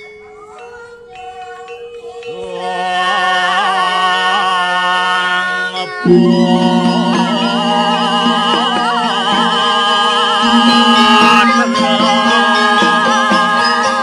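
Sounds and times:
voices chanting held notes: 0:01.4 - 0:14.0
steady low drone: 0:06.1 - 0:14.0.

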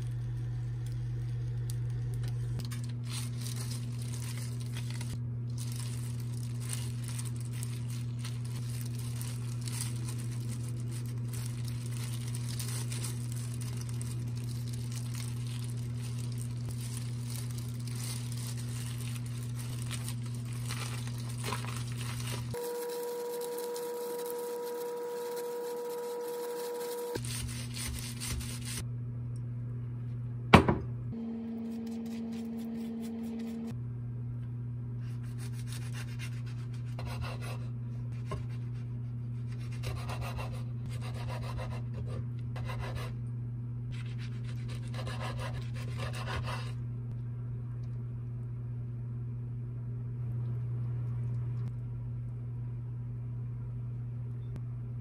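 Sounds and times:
steady low hum: 0:00.0 - 0:55.0
plastic gloves crinkling: 0:02.1 - 0:28.8.

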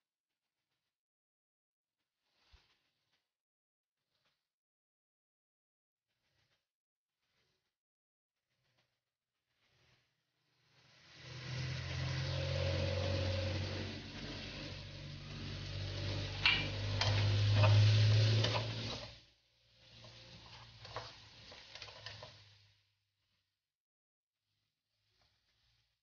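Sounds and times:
food sizzling in a pan: 0:10.8 - 0:22.8.

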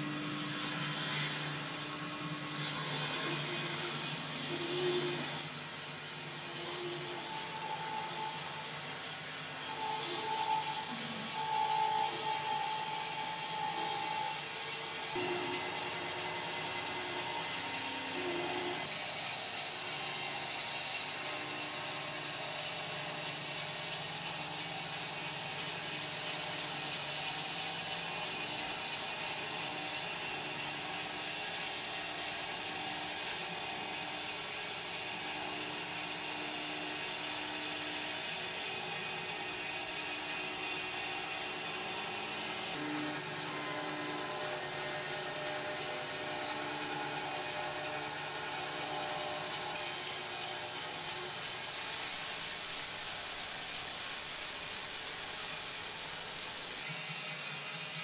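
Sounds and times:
machine hum: 0:00.0 - 0:21.1, 0:38.6 - 0:54.3
saw blade hissing: 0:00.0 - 0:22.8, 0:25.0 - 0:57.1.

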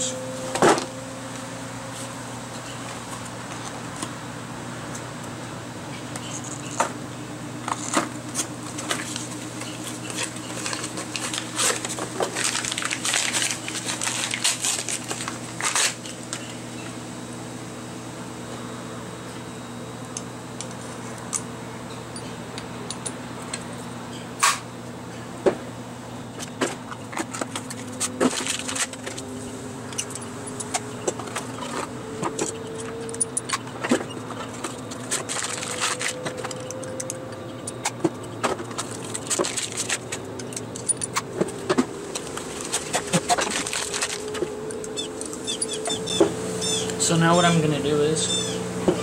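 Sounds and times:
steady low hum: 0:00.0 - 0:49.0
metal parts and tools clinking: 0:29.9 - 0:41.2.

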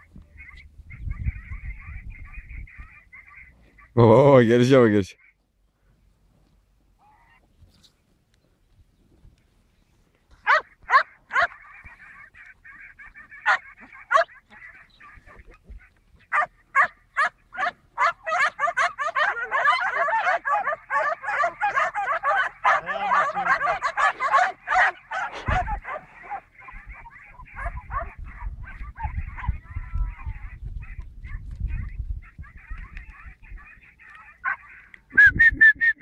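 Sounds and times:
dogs barking: 0:10.4 - 0:12.1, 0:12.8 - 0:34.8
dogs yelping: 0:10.4 - 0:34.9.

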